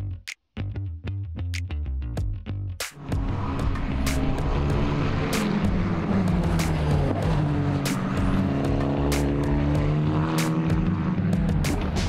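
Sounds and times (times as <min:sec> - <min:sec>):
race car engine accelerating: 0:03.0 - 0:12.0.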